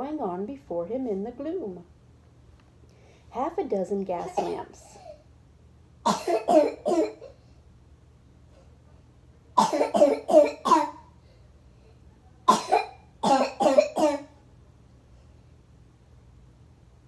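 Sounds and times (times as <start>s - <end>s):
person coughing: 4.2s - 5.2s, 6.1s - 7.4s, 9.6s - 11.1s, 12.5s - 14.3s.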